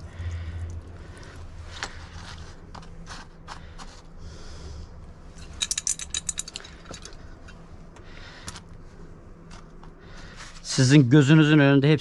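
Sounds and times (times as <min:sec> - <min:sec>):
coins clinking in clay pot: 0:05.4 - 0:07.2.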